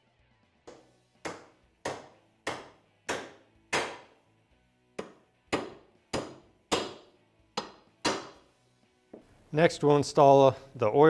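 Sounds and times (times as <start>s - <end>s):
hammer striking metal: 0.7s - 4.2s, 5.0s - 8.4s.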